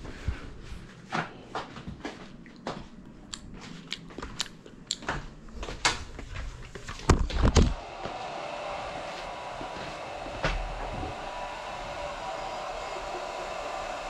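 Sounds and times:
drone motors humming: 0:07.8 - 0:14.0
heavy thumps on floor: 0:09.6 - 0:11.2.

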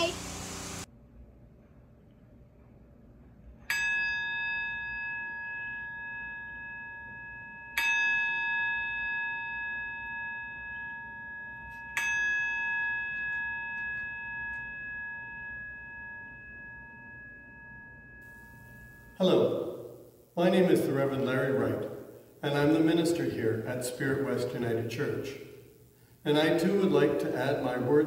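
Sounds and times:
singing bowl ringing: 0:03.7 - 0:22.4.

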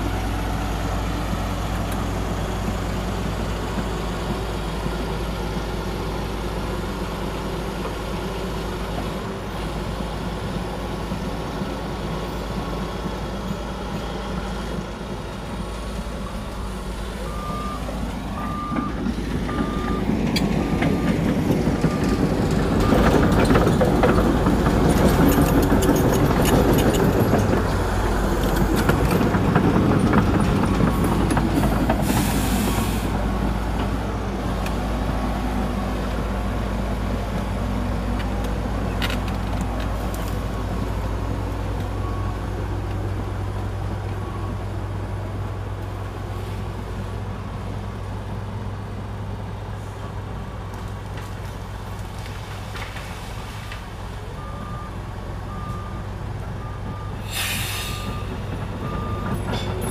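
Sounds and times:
diesel machinery engine drone: 0:00.0 - 0:59.9
faint reversing beeps: 0:16.2 - 0:23.3, 0:40.5 - 0:45.0, 0:54.2 - 0:59.9
short hiss: 0:57.2 - 0:58.1.

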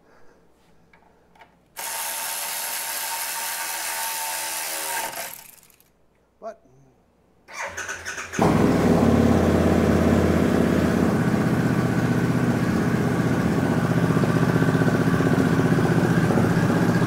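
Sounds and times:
motorcycle engine idling: 0:08.3 - 0:17.0.

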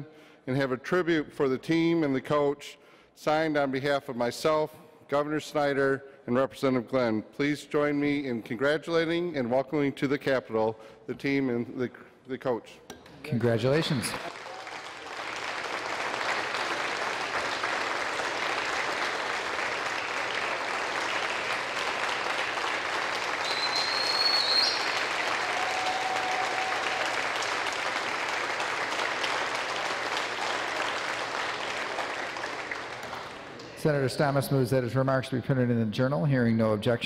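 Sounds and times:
crowd applauding: 0:13.7 - 0:33.8.

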